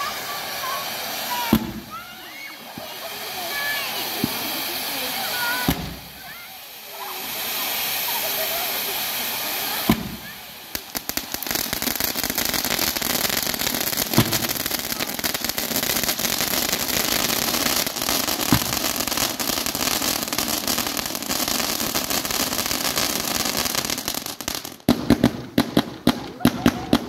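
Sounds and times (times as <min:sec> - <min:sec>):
firework fountains hissing and crackling: 0:00.0 - 0:27.0
fireworks battery firing shots: 0:00.0 - 0:27.0
firework pops: 0:01.3 - 0:02.1, 0:04.1 - 0:04.7, 0:05.4 - 0:06.3, 0:09.8 - 0:13.0, 0:13.9 - 0:17.1, 0:17.8 - 0:21.4.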